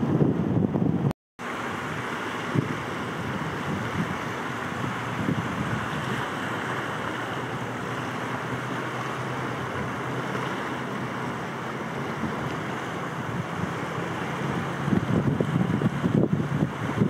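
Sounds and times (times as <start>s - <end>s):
choppy water: 0.0s - 17.0s
wind buffeting microphone: 0.0s - 17.0s.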